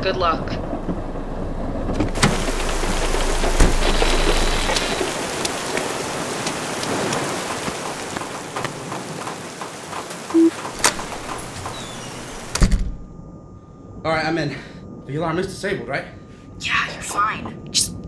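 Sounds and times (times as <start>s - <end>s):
rain falling: 0.6s - 12.7s.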